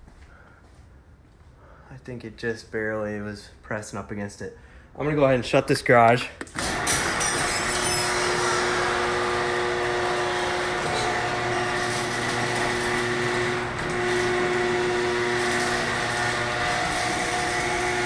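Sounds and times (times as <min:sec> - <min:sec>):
garage door opener motor whine: 0:06.5 - 0:18.0.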